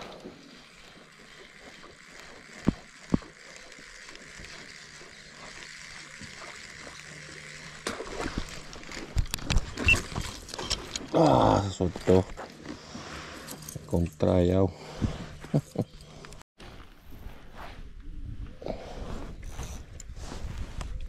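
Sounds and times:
fishing gear handling noise: 0:01.5 - 0:14.2.

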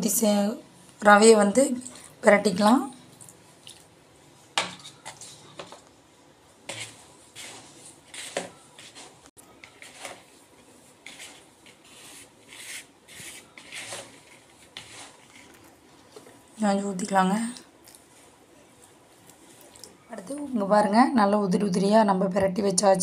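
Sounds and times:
hand rubbing semolina in plastic bowl: 0:06.7 - 0:15.7.

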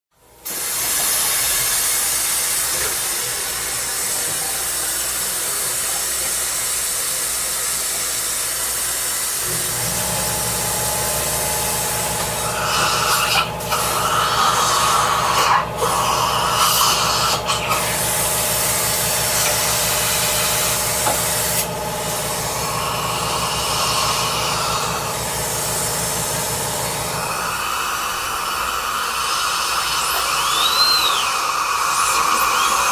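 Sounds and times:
high-pitched suction hiss: 0:00.4 - 0:32.9
high dental drill whine: 0:00.5 - 0:32.9
low motor hum: 0:09.4 - 0:28.9.

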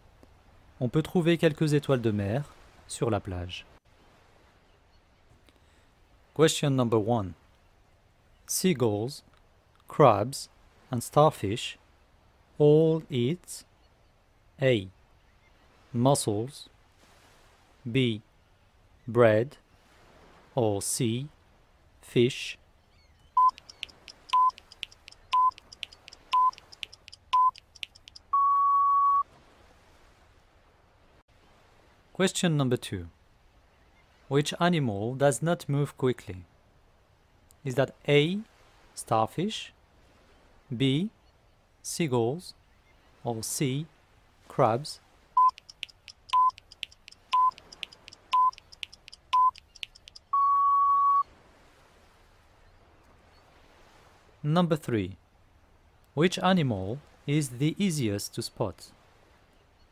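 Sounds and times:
quick clicking ticks: 0:23.4 - 0:28.3, 0:45.4 - 0:50.4
long beep: 0:23.4 - 0:29.2, 0:45.4 - 0:51.3
short beeps: 0:23.4 - 0:29.2, 0:45.4 - 0:51.3.

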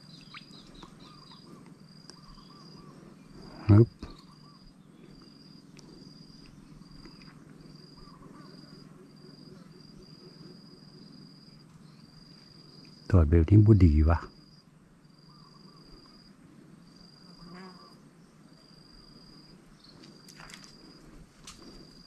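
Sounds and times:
insect buzzing: 0:14.4 - 0:22.0.

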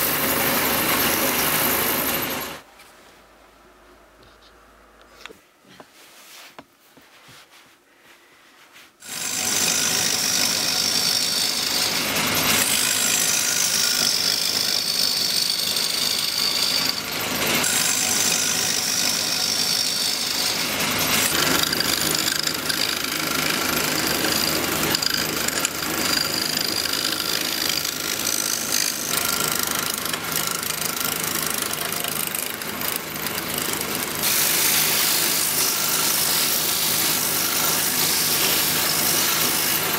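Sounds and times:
wood lathe running: 0:00.0 - 0:02.6, 0:09.0 - 0:39.9.

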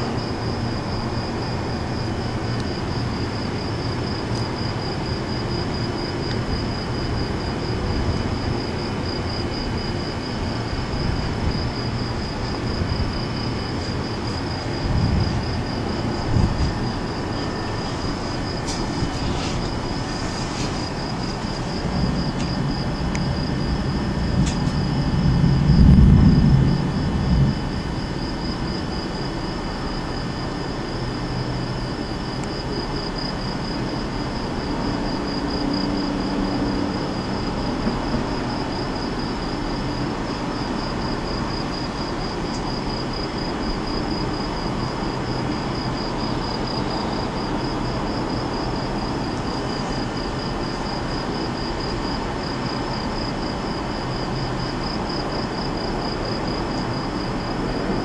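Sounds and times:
insects chirping: 0:00.0 - 0:58.0
low rumble: 0:20.9 - 0:28.7.

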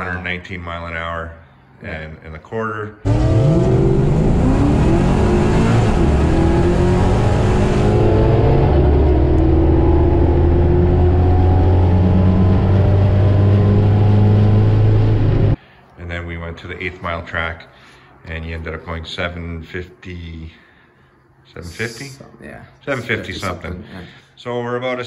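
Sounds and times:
car engine revving at full throttle: 0:03.1 - 0:15.6.

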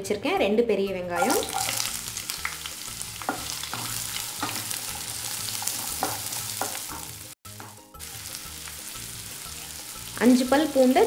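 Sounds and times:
onions sizzling in oil: 0:01.2 - 0:11.0.

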